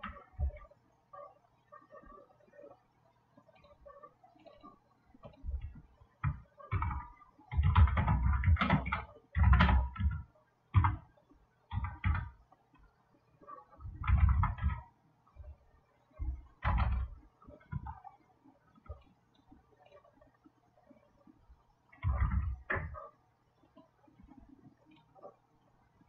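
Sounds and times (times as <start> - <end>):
faint steady hum: 0.0 - 26.0
keyboard typing: 3.5 - 20.1, 21.9 - 25.4.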